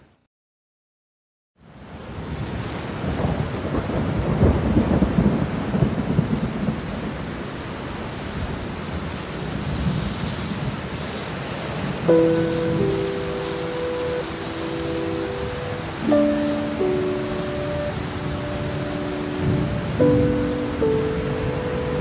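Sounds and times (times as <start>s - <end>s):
heavy rain: 1.6s - 22.0s
rolling thunder rumble: 3.0s - 7.2s, 11.8s - 22.0s
soft sustained music chord: 12.1s - 22.0s.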